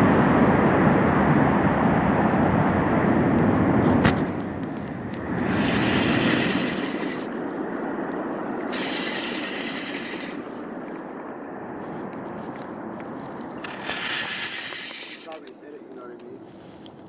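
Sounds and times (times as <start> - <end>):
steady rushing noise: 0.0 - 17.0
fly reel drag buzzing: 5.4 - 7.4, 8.7 - 10.7, 13.6 - 15.4.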